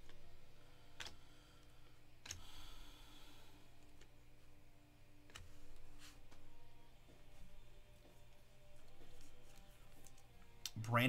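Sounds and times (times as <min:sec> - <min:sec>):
low steady hum: 0:00.0 - 0:11.0
trading cards clicking: 0:00.9 - 0:01.2, 0:02.1 - 0:02.7, 0:05.2 - 0:07.4, 0:08.9 - 0:10.9.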